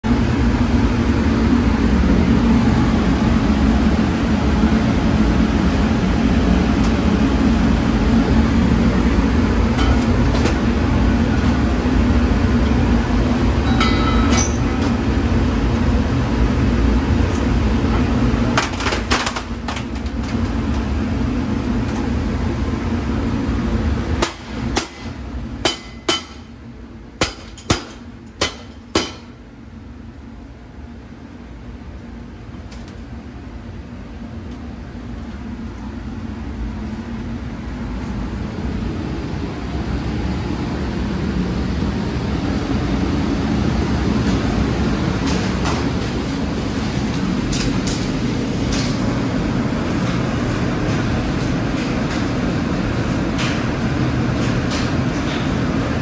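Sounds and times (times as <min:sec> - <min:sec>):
machine mechanical drone: 0:00.0 - 0:56.0.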